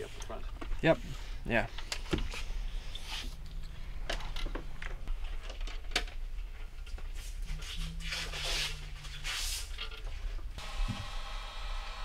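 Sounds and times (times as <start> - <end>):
wiring scratching and rustling: 4.1 - 10.4.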